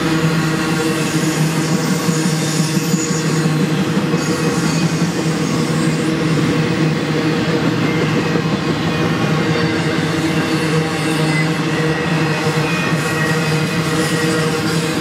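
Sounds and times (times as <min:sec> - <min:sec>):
train wheels rumbling on track: 0:00.0 - 0:15.0.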